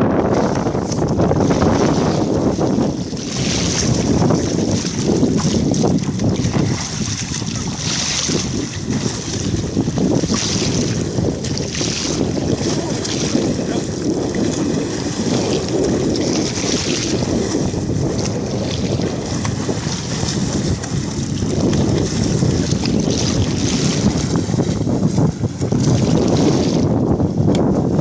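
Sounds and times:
splashing choppy water: 0.0s - 28.0s
wind buffeting microphone: 0.0s - 28.0s.

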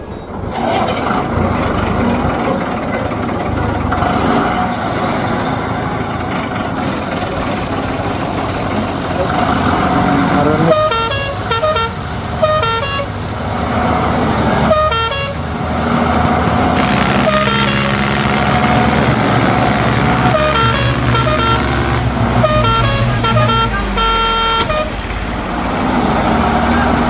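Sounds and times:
engine drone: 0.0s - 27.0s
vehicle horn tooting: 9.2s - 13.2s, 14.6s - 15.4s, 16.7s - 19.0s, 19.7s - 25.0s.

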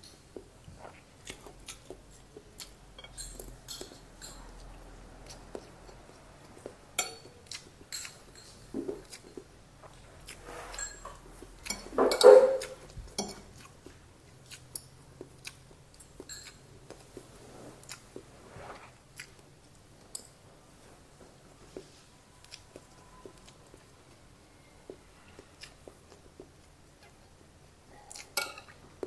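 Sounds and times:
person chewing food: 0.0s - 29.0s
spoon and fork scraping plate: 10.4s - 12.6s.

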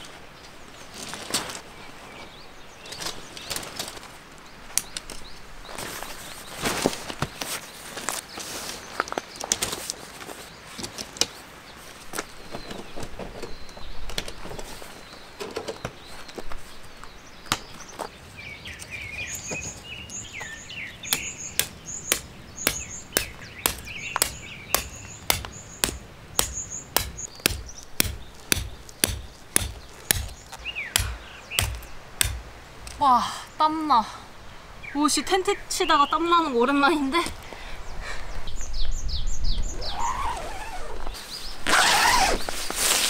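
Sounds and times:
birds chirping: 10.4s - 42.5s
tent poles knocking and rustling: 20.4s - 33.0s
hammer driving peg into gravel: 21.1s - 32.5s.

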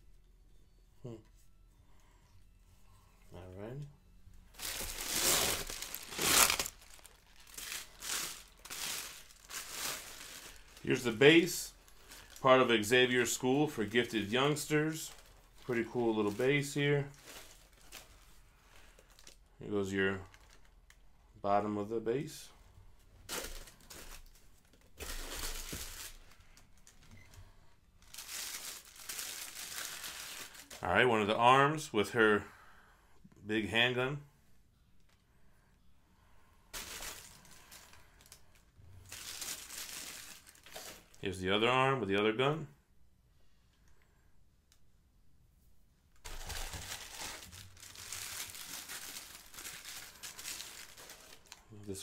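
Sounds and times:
packaging crinkling and rustling: 4.5s - 19.5s, 20.2s - 21.0s, 23.2s - 27.4s, 28.0s - 30.9s, 36.7s - 41.2s, 46.2s - 51.7s.

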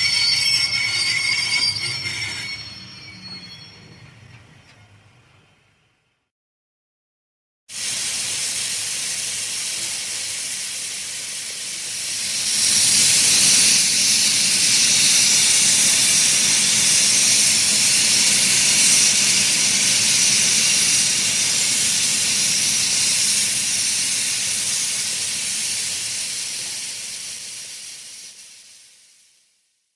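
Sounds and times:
train brakes hissing: 0.0s - 4.3s, 7.7s - 29.6s.

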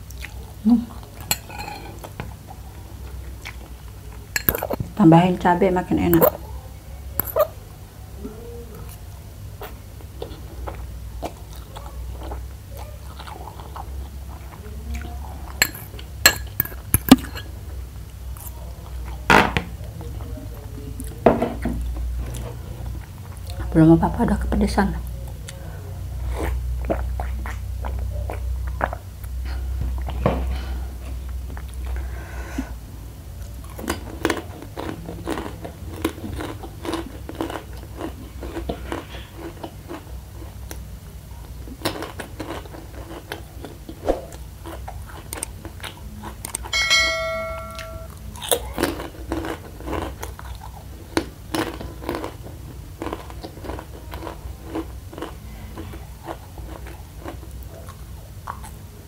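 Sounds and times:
chewing and crunching: 9.6s - 17.4s, 25.0s - 30.3s, 33.4s - 46.8s, 48.1s - 59.0s
steady low hum: 43.8s - 48.7s
brief ringing tone: 46.8s - 48.2s.

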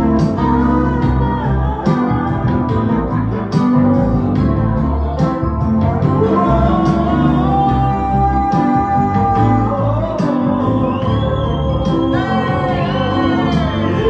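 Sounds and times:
electric organ: 0.0s - 14.0s
guitar: 0.0s - 14.0s
live band playing: 0.0s - 14.0s.

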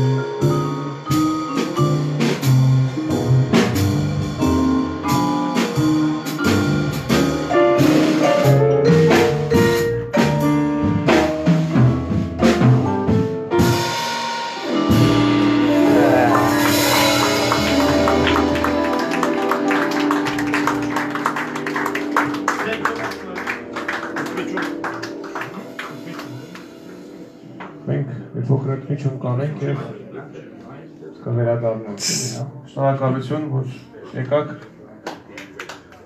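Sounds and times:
jazz combo playing blues: 0.0s - 30.6s
walking bass: 14.9s - 23.8s.

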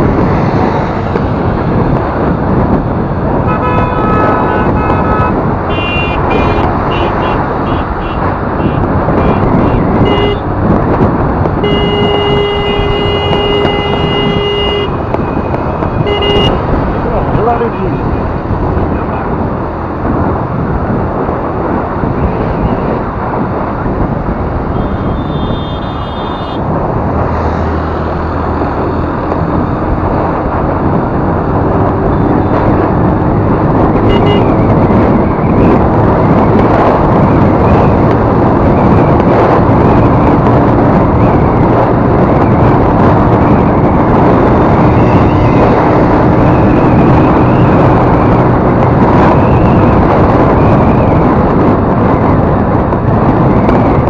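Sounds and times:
scooter road noise: 0.0s - 54.0s
wind rushing over microphone: 0.0s - 54.0s
high-pitched horn tone: 3.5s - 10.4s, 11.6s - 15.0s, 16.0s - 16.6s, 24.8s - 26.6s, 34.1s - 34.6s.

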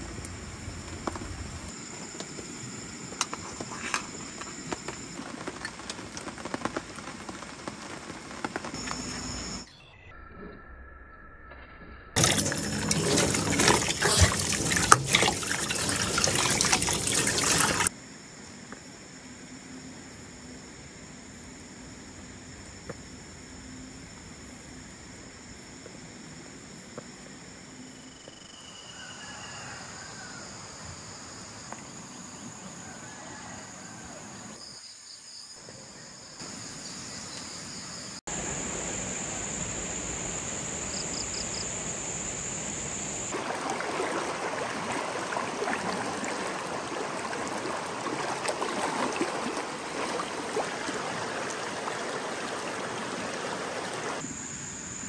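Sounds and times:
insects trilling: 0.0s - 10.0s, 12.2s - 55.0s
river rushing: 43.3s - 54.2s.

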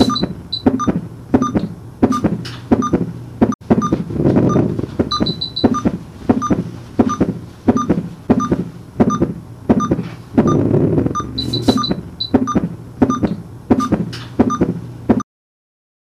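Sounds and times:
electronic beeping: 0.0s - 3.0s, 3.8s - 13.4s
low hum: 3.7s - 13.5s.

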